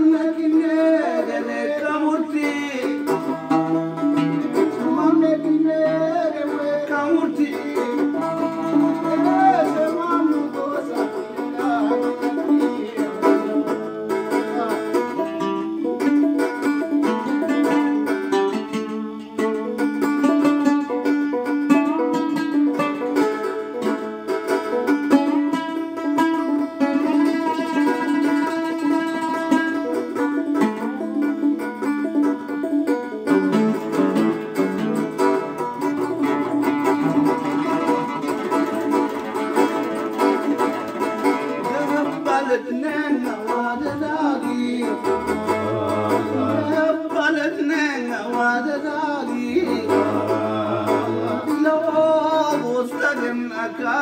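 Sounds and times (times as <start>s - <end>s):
man singing: 0.0s - 16.2s, 25.5s - 31.0s, 39.9s - 54.0s
plucked string instruments: 0.0s - 54.0s.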